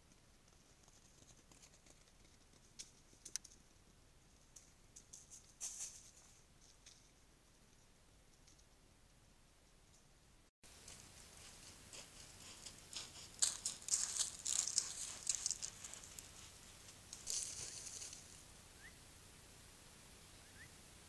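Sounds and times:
footsteps on leaves: 10.8 - 18.4.

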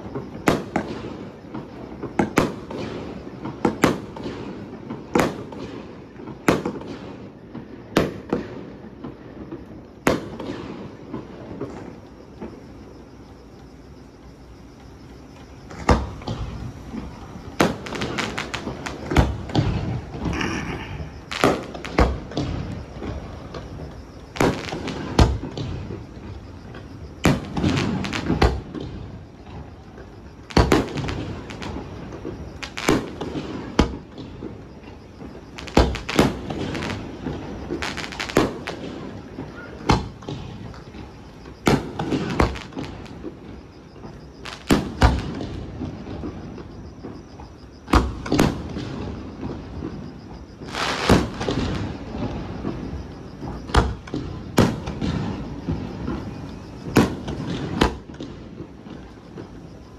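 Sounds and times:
firework shells bursting: 15.7 - 29.7, 50.6 - 52.8.

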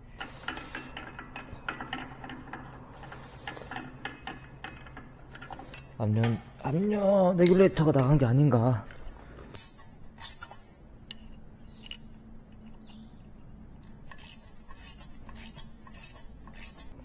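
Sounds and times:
ratchet wrench clicking: 9.6 - 11.3, 14.1 - 17.0.

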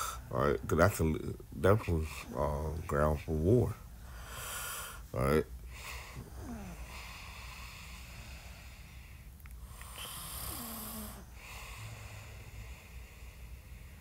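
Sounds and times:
person breathing noisily: 0.0 - 0.3, 4.0 - 14.0
low steady hum: 0.0 - 14.0.

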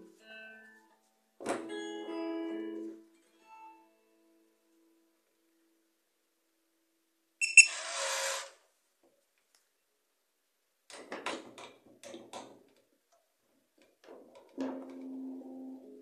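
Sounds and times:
keycard reader buzzing: 7.4 - 7.8.

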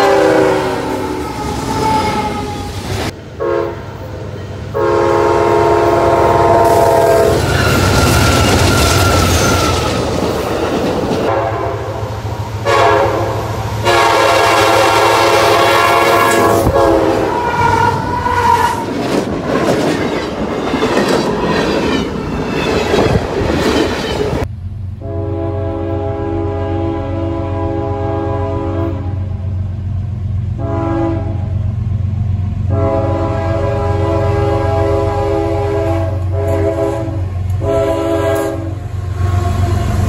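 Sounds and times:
locomotive horn blasts: 0.0 - 2.6, 3.4 - 4.0, 4.7 - 9.9, 11.3 - 18.8, 25.0 - 29.4, 30.6 - 31.6, 32.7 - 40.0
train rumble: 0.0 - 40.0
wheels clacking over rail joints: 18.0 - 24.5.

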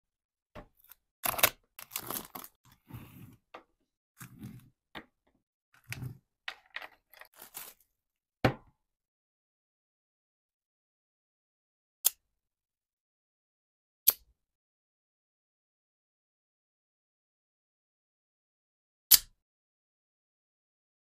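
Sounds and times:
plastic bag crinkling: 1.3 - 2.6, 6.6 - 7.8.

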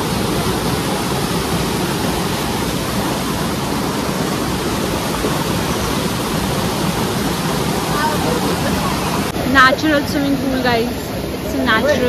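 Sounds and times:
stream rushing over boulders: 0.0 - 12.0.

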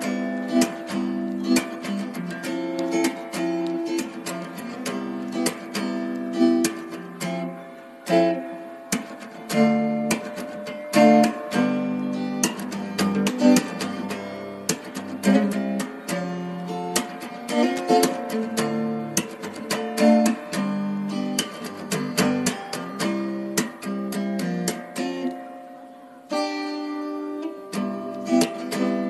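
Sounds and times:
acoustic guitar music: 0.0 - 29.0.

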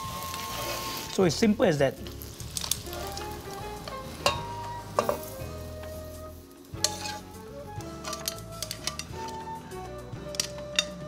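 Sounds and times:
pasta sizzling in pan: 0.0 - 9.6
soft background music: 0.0 - 11.0
tongs clicking on pan and plate: 6.8 - 7.2, 7.8 - 9.4, 10.3 - 11.0.

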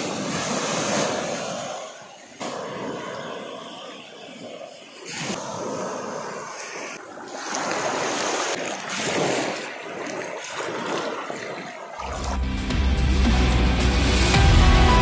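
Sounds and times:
waves lapping on sandy shore: 0.0 - 12.4
music: 12.1 - 15.0.

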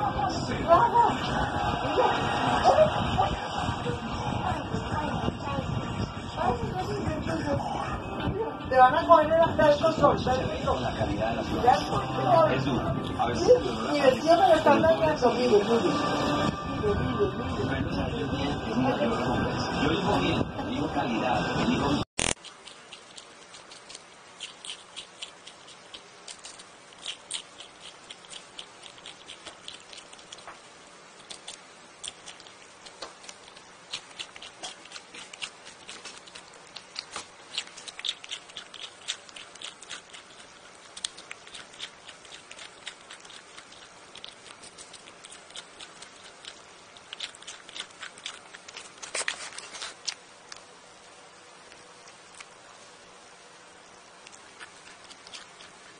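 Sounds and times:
squirrel crunching cucumber: 22.1 - 55.9.

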